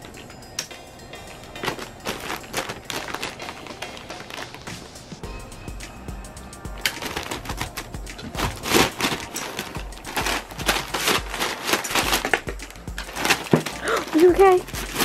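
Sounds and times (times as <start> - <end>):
faint music: 0.0 - 15.0
paper crackling under cat: 1.6 - 5.2, 6.8 - 15.0.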